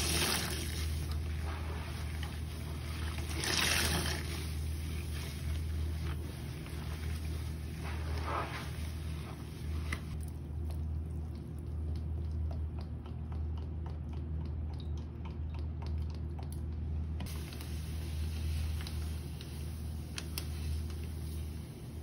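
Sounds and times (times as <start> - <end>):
sponge squelching in water: 0.0 - 14.7
liquid pouring with bubbles popping: 0.0 - 17.2
powder pouring hiss: 17.3 - 22.0.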